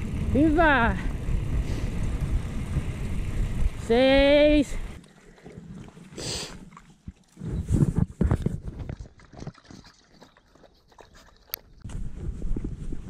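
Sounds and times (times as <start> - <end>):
wind rush on microphone: 0.0 - 5.0, 11.8 - 13.0
dog lapping water: 5.0 - 7.7, 8.3 - 11.8.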